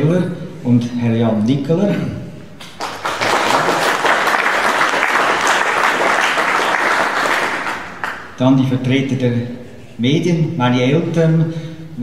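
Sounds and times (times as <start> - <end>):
audience applauding: 2.6 - 8.4.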